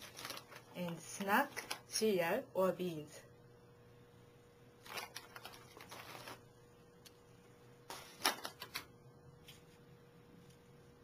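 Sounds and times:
plastic snack bag rustling: 0.0 - 1.9, 4.8 - 6.5, 7.9 - 8.9.

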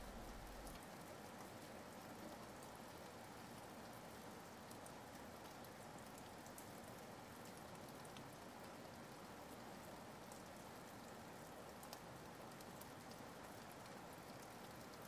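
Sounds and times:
faint ticks: 0.0 - 3.0.

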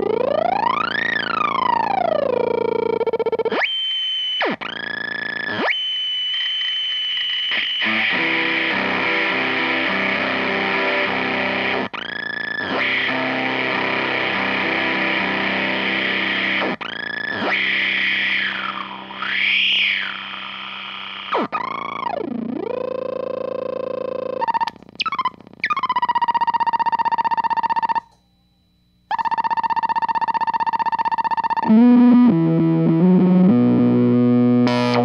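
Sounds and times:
fuzzy electric guitar notes: 3.5 - 25.8, 31.6 - 35.0.

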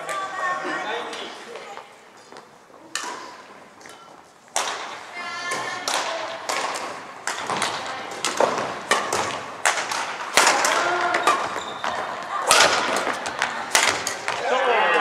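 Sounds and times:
rackets smacking shuttlecock: 2.9 - 14.5.

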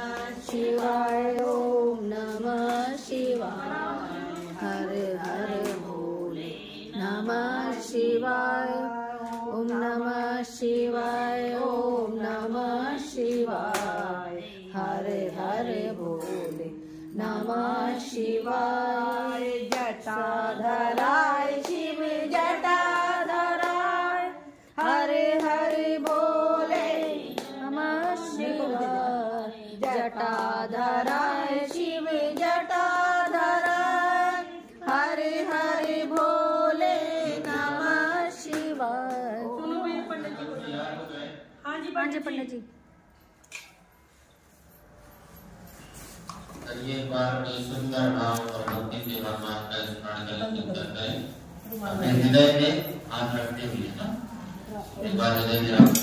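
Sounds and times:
hand clapping: 0.0 - 3.5, 21.0 - 24.0, 24.8 - 28.2, 29.8 - 34.2, 37.4 - 39.3
women singing devotional song: 0.0 - 41.3, 46.0 - 56.0.

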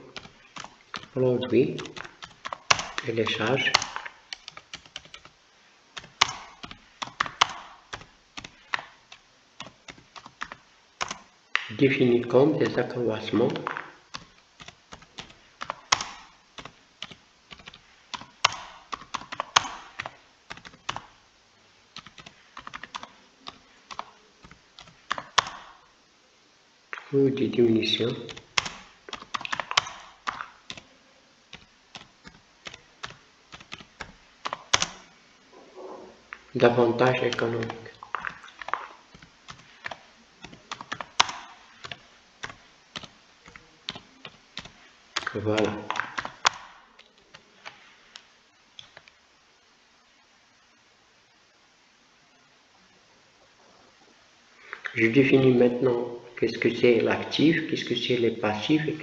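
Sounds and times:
keyboard typing: 0.0 - 5.4, 6.0 - 11.9, 12.6 - 21.2, 21.9 - 25.8, 28.1 - 30.9, 31.5 - 35.1, 36.4 - 48.2, 48.8 - 49.2.

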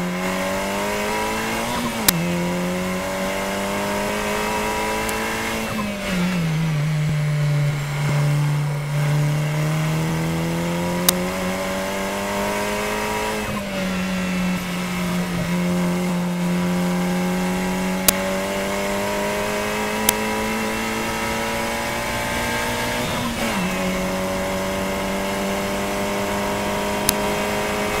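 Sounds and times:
race car engine accelerating: 0.0 - 28.0
sharp clicks: 20.0 - 20.2.

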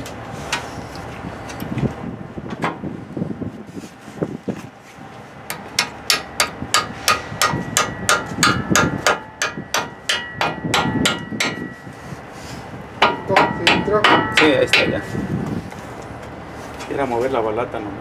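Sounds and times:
hammer striking metal: 5.5 - 11.9, 13.0 - 15.2.

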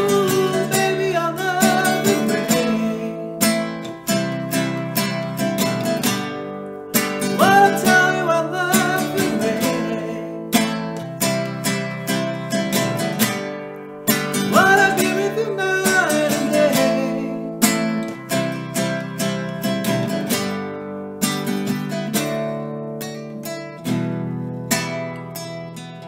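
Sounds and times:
man singing: 0.0 - 3.8, 7.2 - 11.0, 14.3 - 17.9
classical guitar strumming: 0.0 - 26.0.

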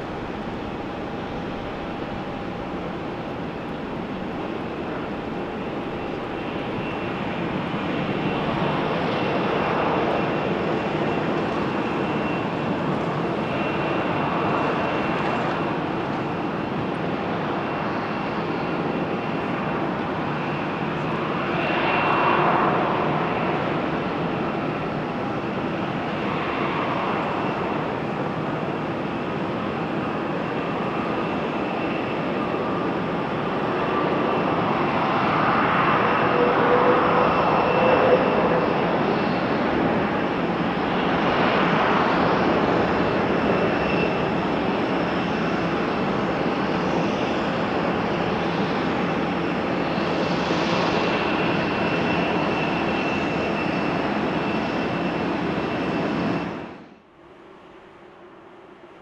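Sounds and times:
jet engines rushing and whining: 0.0 - 59.0.

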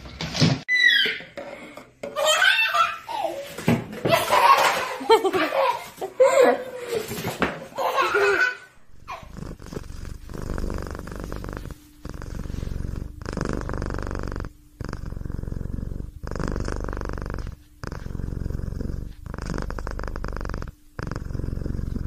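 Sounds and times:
cat purring: 8.9 - 22.0.

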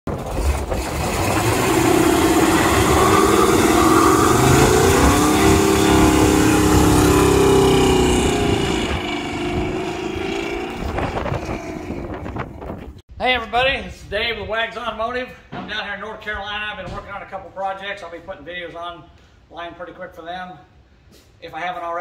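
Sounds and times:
truck engine revving: 0.1 - 13.0
tyres spinning and squealing: 0.2 - 13.0.

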